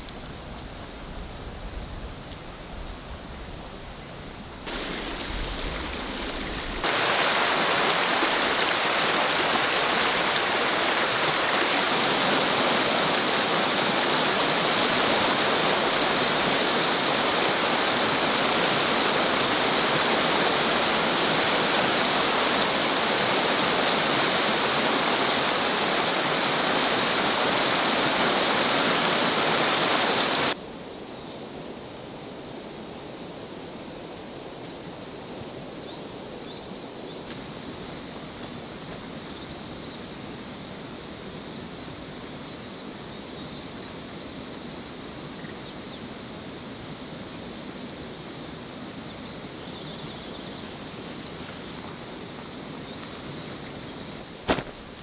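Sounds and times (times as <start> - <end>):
stream flowing over rocks: 4.6 - 30.6.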